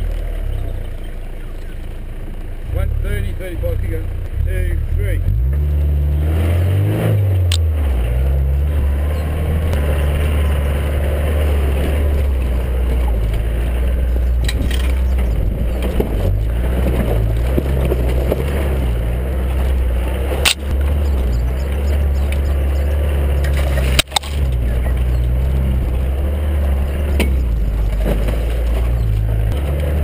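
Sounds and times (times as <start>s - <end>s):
vehicle engine under load: 0.0s - 30.0s
tyre noise: 4.3s - 30.0s
vehicle body knocking over bumps: 11.7s - 30.0s
wind noise: 14.0s - 18.1s.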